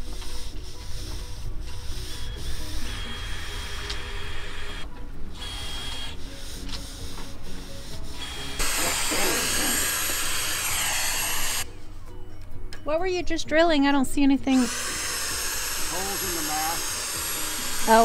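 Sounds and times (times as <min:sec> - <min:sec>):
cordless drill whining: 0:02.0 - 0:07.2, 0:08.1 - 0:11.7, 0:14.5 - 0:18.0.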